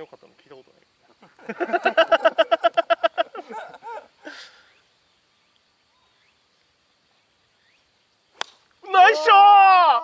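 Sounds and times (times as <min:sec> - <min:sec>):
faint bird chirps: 0:03.6 - 0:08.8.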